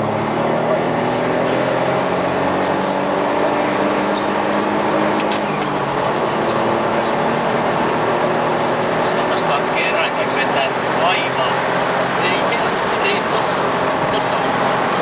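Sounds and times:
car engine accelerating: 0:00.0 - 0:15.0
road and wind noise: 0:00.0 - 0:15.0.

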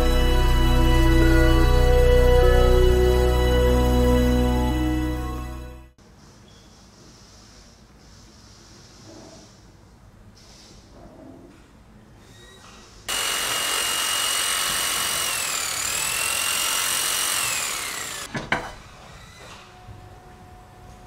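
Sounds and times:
angle grinder whine: 0:00.0 - 0:05.8, 0:13.1 - 0:18.3.

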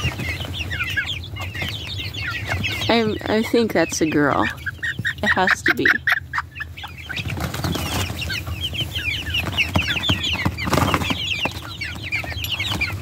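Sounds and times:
chicks peeping: 0:00.0 - 0:13.0
flurry of wings: 0:07.1 - 0:08.4.

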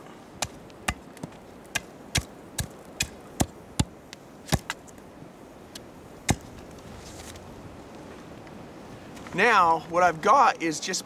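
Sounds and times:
hatchet chopping wood: 0:00.4 - 0:03.9, 0:04.5 - 0:04.8, 0:06.3 - 0:06.5.

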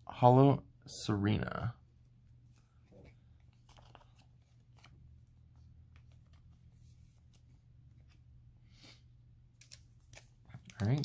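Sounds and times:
card and plastic sleeve rustling: 0:02.4 - 0:08.4, 0:09.5 - 0:11.0.

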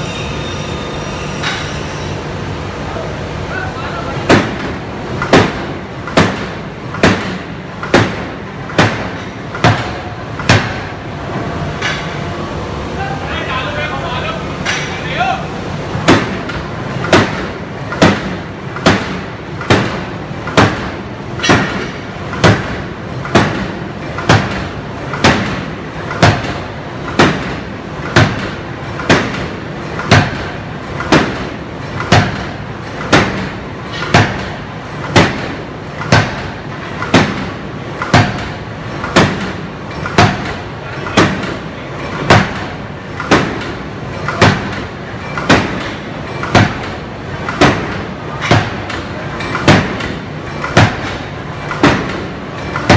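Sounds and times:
forging hammer striking steel: 0:00.0 - 0:02.1, 0:30.0 - 0:52.9.

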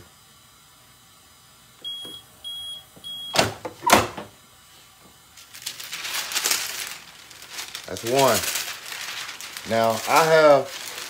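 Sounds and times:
press opening clunks: 0:01.8 - 0:04.3
film and mat rustling: 0:05.4 - 0:11.0.

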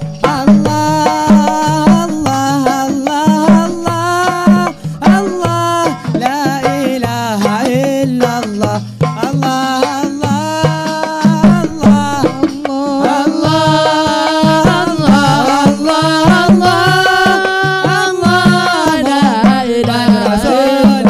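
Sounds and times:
group singing: 0:00.0 - 0:06.2, 0:10.9 - 0:21.0
hand drums rhythm: 0:00.0 - 0:21.0.

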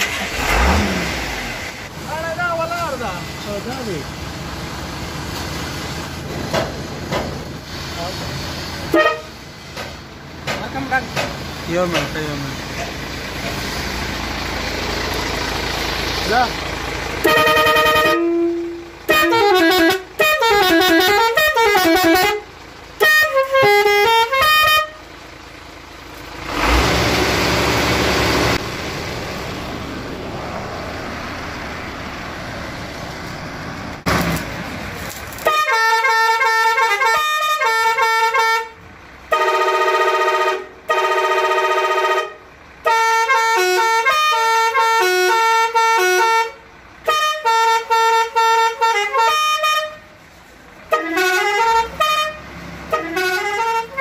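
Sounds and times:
truck air horn playing tunes: 0:08.9 - 0:09.4, 0:17.2 - 0:25.1, 0:35.4 - 0:50.1, 0:50.8 - 0:54.0
steady rushing noise: 0:28.5 - 0:34.1.

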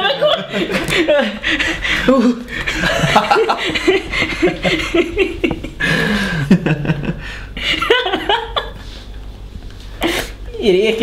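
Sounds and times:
people laughing: 0:00.0 - 0:09.0.

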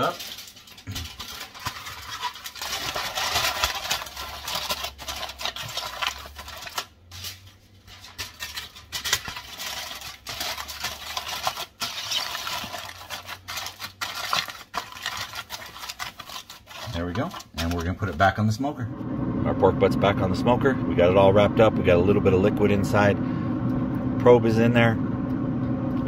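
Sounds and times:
aluminium foil crinkling: 0:00.0 - 0:18.4.

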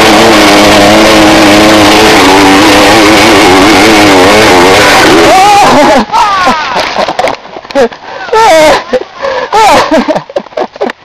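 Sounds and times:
motorcycle engine revving: 0:00.0 - 0:06.1.

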